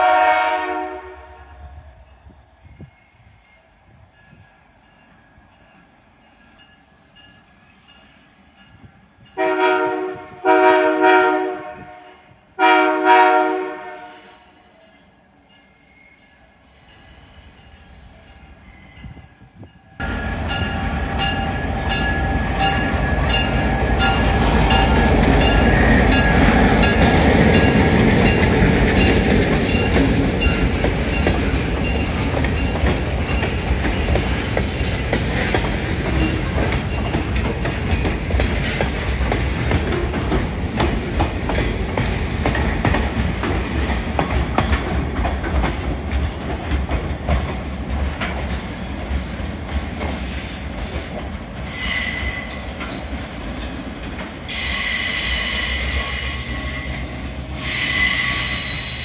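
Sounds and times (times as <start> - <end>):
freight train wheels rumbling: 0.0 - 59.0
high-pitched wheel squeal: 54.5 - 59.0.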